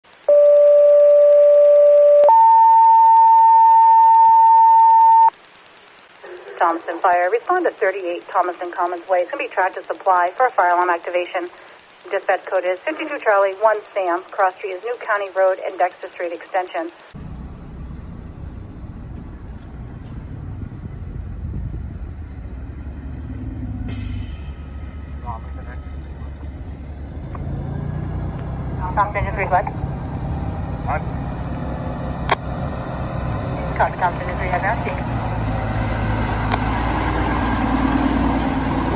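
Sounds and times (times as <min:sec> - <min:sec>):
two-tone radio paging tones: 0:00.1 - 0:05.4, 0:28.7 - 0:29.9
fire engine diesel rumbling: 0:17.2 - 0:38.9.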